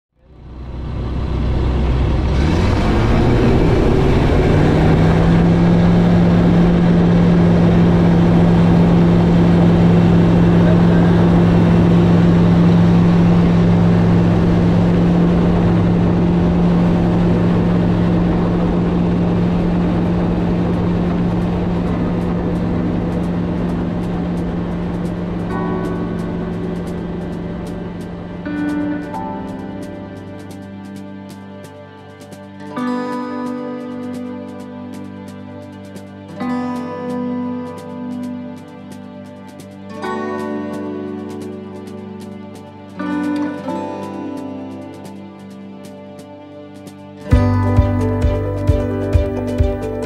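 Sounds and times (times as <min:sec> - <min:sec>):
light aircraft engine and propeller: 0:00.2 - 0:31.5.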